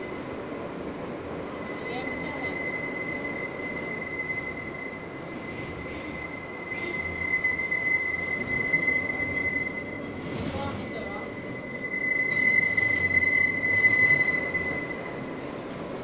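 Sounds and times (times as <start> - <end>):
train rolling rumble: 0.0 - 16.0
train wheels squealing: 1.6 - 15.6.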